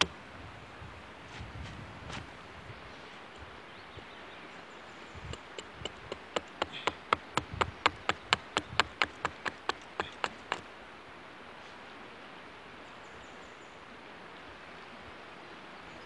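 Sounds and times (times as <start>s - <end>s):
hatchet knocking on wood: 5.3s - 10.6s.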